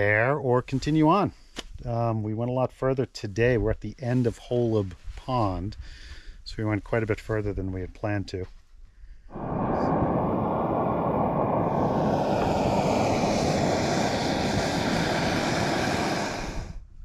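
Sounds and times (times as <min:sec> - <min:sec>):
gas stove burner hissing: 0:09.4 - 0:16.8.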